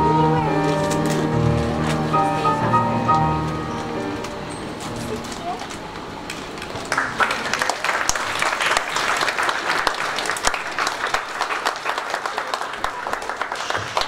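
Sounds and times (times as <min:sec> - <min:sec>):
audience applauding: 0:06.7 - 0:14.0.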